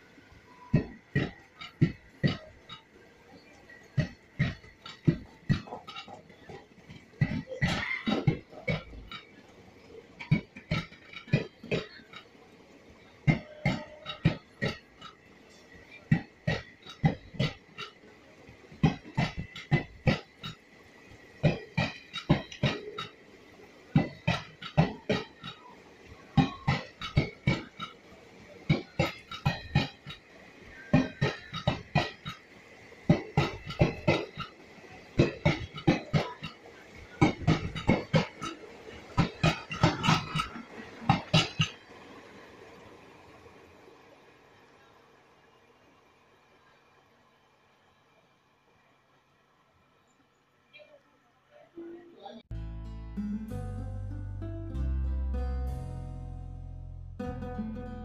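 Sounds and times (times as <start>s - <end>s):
train wheels clacking: 0.0s - 42.8s.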